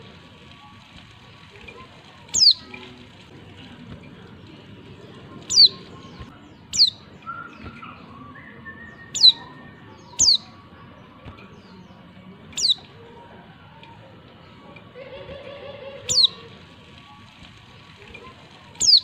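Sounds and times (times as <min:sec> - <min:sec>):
sharp high bird calls: 0:02.3 - 0:02.7, 0:05.4 - 0:05.9, 0:06.7 - 0:10.6, 0:12.6 - 0:12.9, 0:15.3 - 0:16.4, 0:18.8 - 0:19.0.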